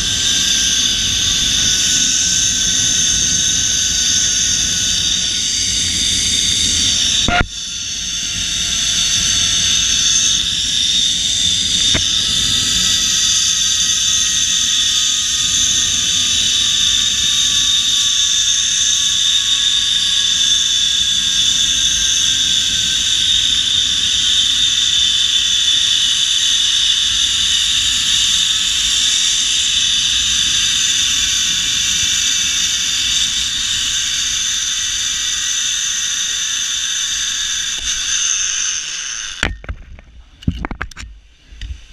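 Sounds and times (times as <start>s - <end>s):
wind on microphone: 0.0s - 38.8s
zip line pulleys whining: 0.0s - 39.8s
sharp click: 7.2s - 7.5s.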